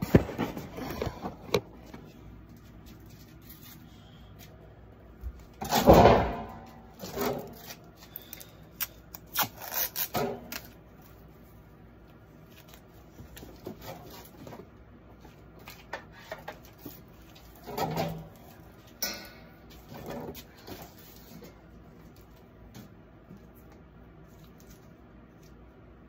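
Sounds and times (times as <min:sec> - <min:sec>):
tape roll rubbing and scraping: 0:07.1 - 0:10.8.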